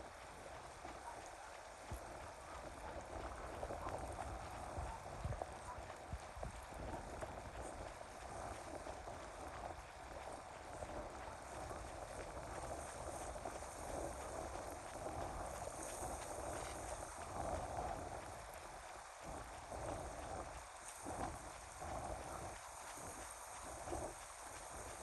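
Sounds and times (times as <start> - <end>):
wind rumbling on microphone: 0.0 - 25.0.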